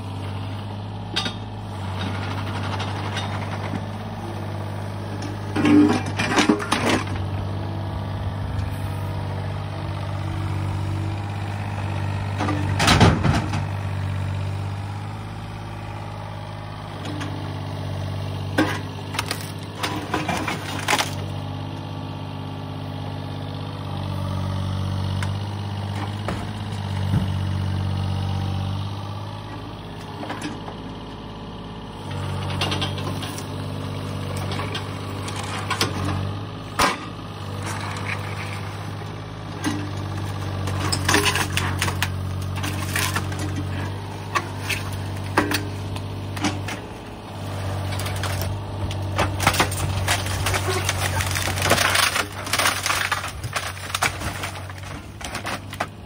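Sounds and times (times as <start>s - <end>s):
excavator diesel engine running: 0.0s - 56.0s
timber and debris cracking: 18.6s - 21.4s, 39.9s - 56.0s.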